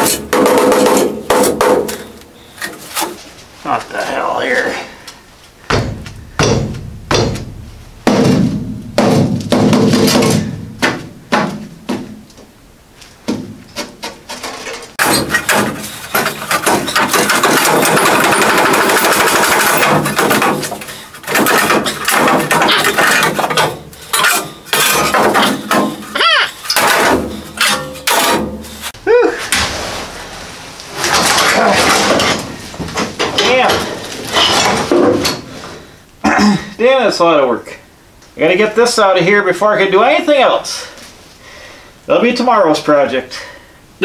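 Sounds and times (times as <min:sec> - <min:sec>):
sheet metal clanks: 0:13.3 - 0:35.5.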